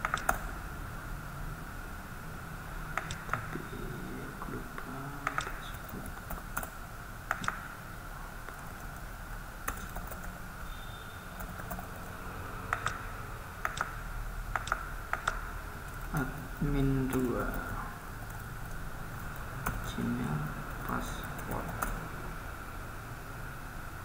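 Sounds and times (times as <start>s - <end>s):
mouse clicks: 0.0s - 0.5s, 3.0s - 3.6s, 5.2s - 5.6s, 7.3s - 7.7s, 12.7s - 16.3s
keyboard typing: 0.0s - 0.6s, 2.9s - 3.9s, 5.2s - 7.7s, 8.5s - 10.4s, 11.4s - 22.0s
faint background hum: 0.0s - 24.0s.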